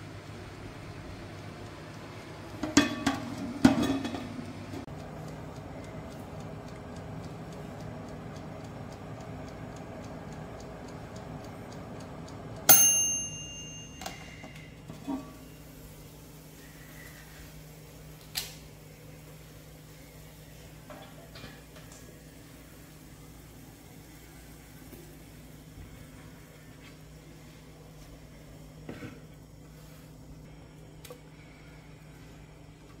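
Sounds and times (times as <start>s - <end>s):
oven fan hum: 0.0s - 33.0s
mechanical timer ticking: 4.9s - 14.4s
sharp ringing clink: 12.7s - 14.6s.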